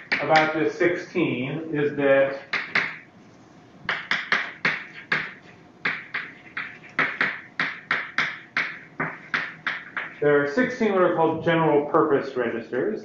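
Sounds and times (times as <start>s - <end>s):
chalk writing on a blackboard: 4.0s - 10.2s.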